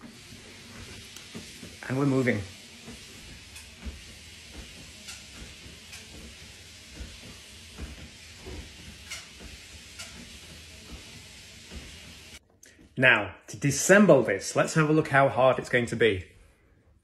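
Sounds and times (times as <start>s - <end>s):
footsteps on treadmill belt: 0.0s - 13.0s
treadmill motor and belt hiss: 0.0s - 17.0s.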